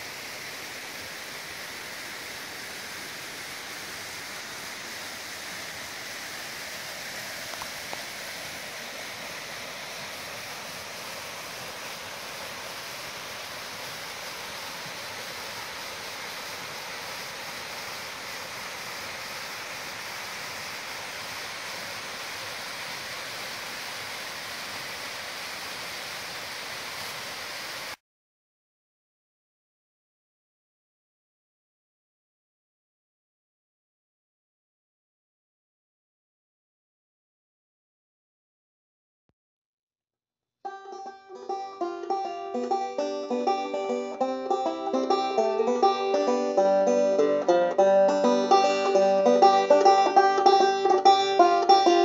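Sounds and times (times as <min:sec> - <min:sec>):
waterfall splashing into pool: 0:00.0 - 0:28.0.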